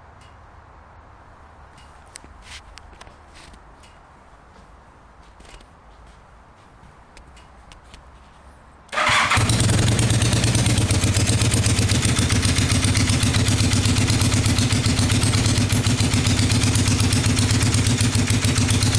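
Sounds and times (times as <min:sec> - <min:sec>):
motorcycle engine starting and idling: 0:08.9 - 0:18.9.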